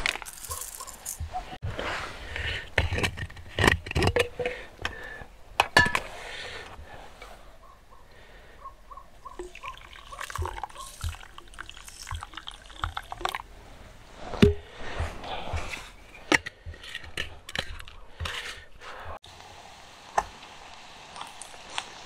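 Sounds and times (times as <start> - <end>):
water glugging from bottle: 9.3 - 13.5.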